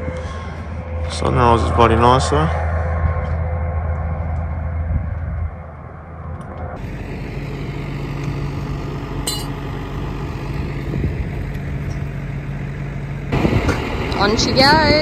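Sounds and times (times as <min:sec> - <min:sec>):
truck engine idling: 0:05.7 - 0:15.0
metallic clink: 0:09.3 - 0:09.6.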